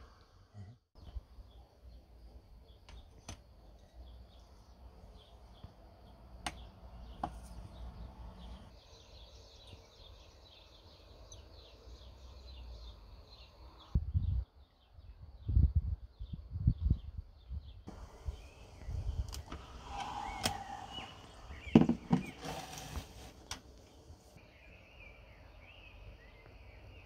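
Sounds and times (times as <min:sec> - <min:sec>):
small birds chirping: 0:00.1 - 0:27.0
wind gusts on microphone: 0:14.0 - 0:21.8.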